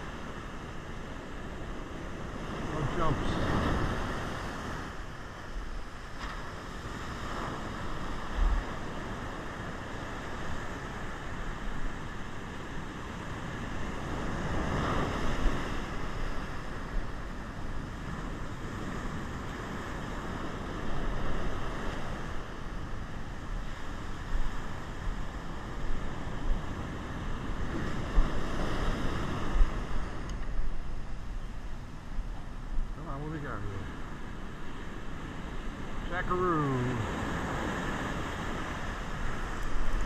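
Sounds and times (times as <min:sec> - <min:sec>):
wind buffeting microphone: 0:00.0 - 0:33.0
ocean surf breaking on beach: 0:00.0 - 0:40.0.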